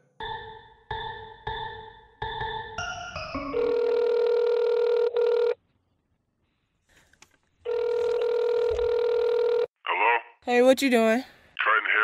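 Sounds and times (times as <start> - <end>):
telephone ringing beep: 3.6 - 5.6, 7.7 - 9.7.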